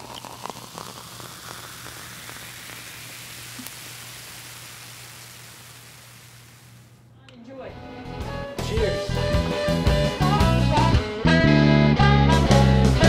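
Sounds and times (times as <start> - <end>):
beer pouring into glass: 0.0 - 6.7.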